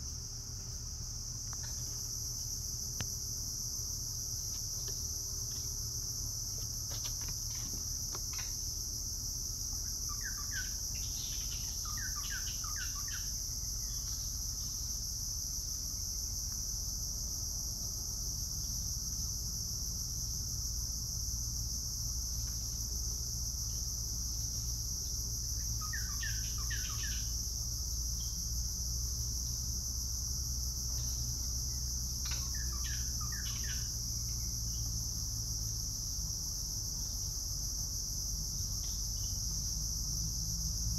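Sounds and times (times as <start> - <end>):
high-pitched insect drone: 18.2 - 40.9.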